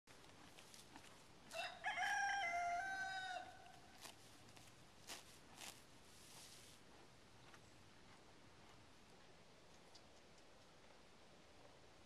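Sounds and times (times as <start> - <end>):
rooster crowing: 1.5 - 3.7
faint clicks: 9.7 - 10.8.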